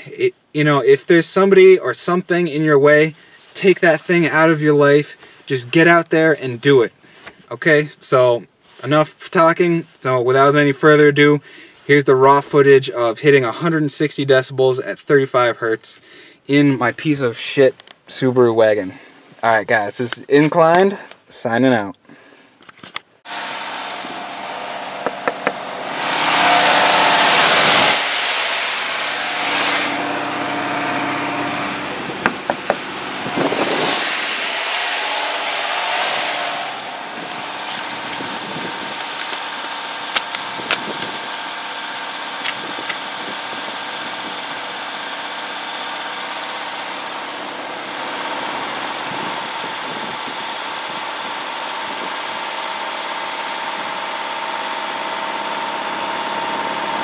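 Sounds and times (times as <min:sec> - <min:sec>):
car engine idling: 0:23.3 - 0:57.0
rushing noise: 0:23.4 - 0:39.2.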